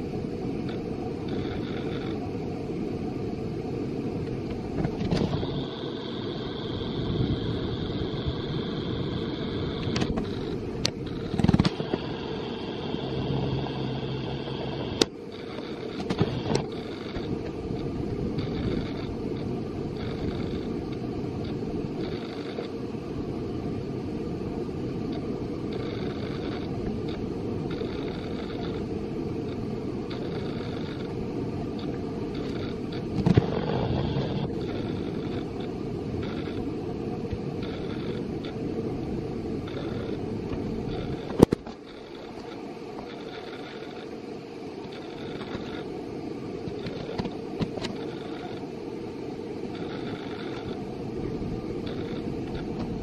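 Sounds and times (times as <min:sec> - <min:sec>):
sharp clicks: 0:09.8 - 0:12.0.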